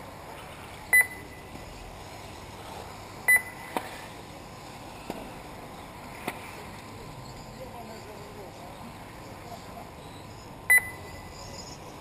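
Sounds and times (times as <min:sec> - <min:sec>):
short high electronic beeps: 0:10.7 - 0:11.9.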